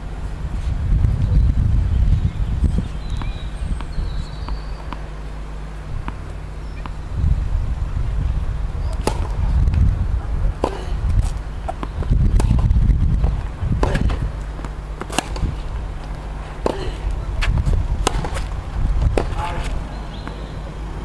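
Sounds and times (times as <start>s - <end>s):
steady low rumble: 0.0s - 21.0s
tennis ball bouncing: 3.0s - 7.2s, 8.8s - 9.8s, 10.6s - 20.5s
tennis racket hitting ball: 5.9s - 7.0s, 8.9s - 9.4s, 13.3s - 20.4s.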